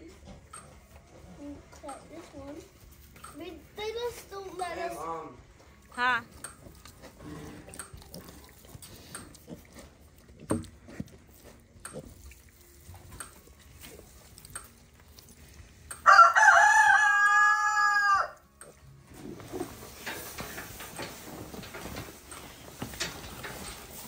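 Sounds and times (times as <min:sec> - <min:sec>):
piglets feeding in straw: 0:00.0 - 0:24.0
rooster crowing: 0:16.0 - 0:18.4.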